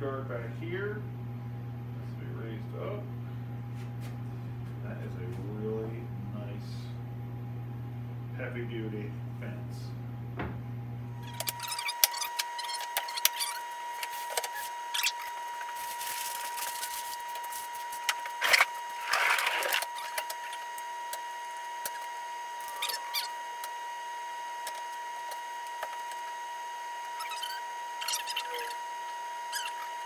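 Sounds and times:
high-pitched hum: 8.9 - 30.0.

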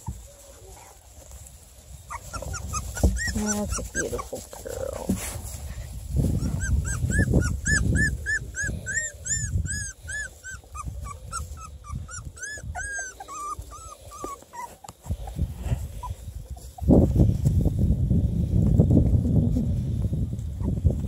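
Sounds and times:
rustling in wood shavings: 0.0 - 21.0
puppy crying in high squeaks: 2.1 - 4.3, 6.4 - 14.8.

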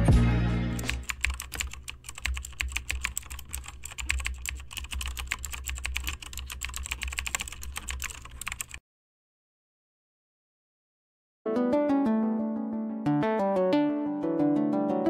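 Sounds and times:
keyboard typing: 0.8 - 8.8.

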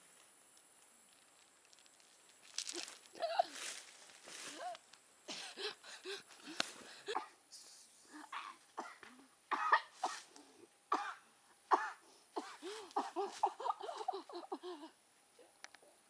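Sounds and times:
person coughing hard: 8.3 - 10.3, 10.9 - 14.7.

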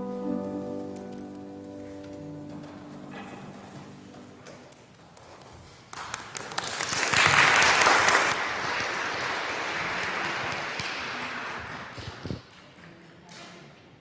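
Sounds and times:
congregation applauding: 4.6 - 13.2.

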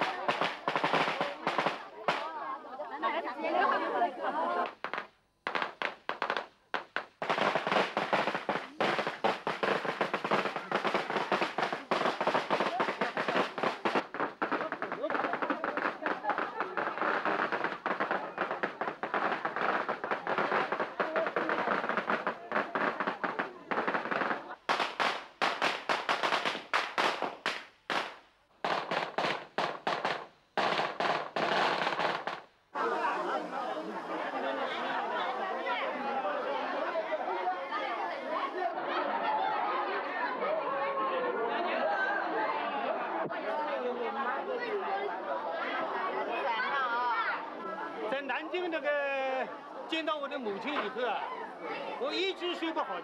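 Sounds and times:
firecrackers popping: 0.0 - 2.4, 4.6 - 34.8, 48.1 - 51.2.

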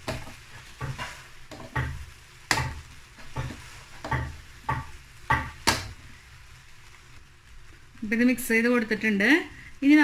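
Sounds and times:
faint sizzle: 0.0 - 10.0
metal spoon scraping a pan: 0.1 - 2.0.

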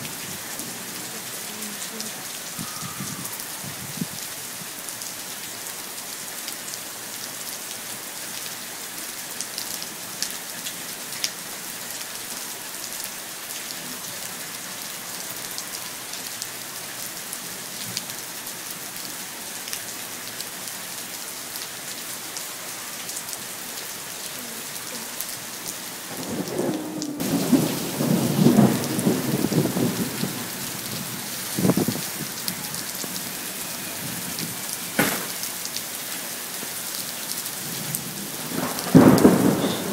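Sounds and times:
steady rain: 0.0 - 39.9
thunder rumble: 26.1 - 33.1, 37.6 - 39.9.

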